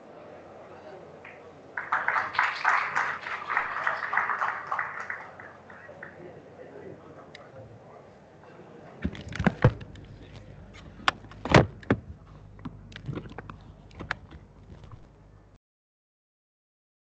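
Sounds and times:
handling knocks and clicks: 0:09.0 - 0:15.1.

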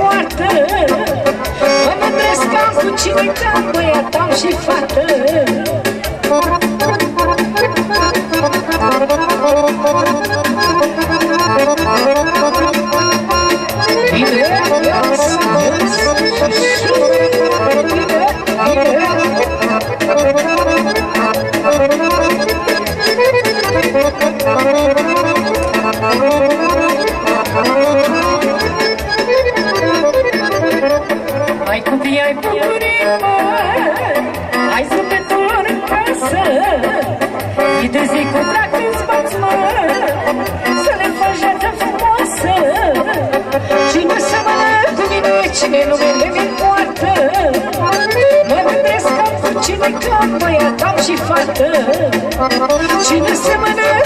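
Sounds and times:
steady dance beat: 0:00.0 - 0:30.3
accordion-voiced keyboard melody: 0:00.0 - 0:54.0.

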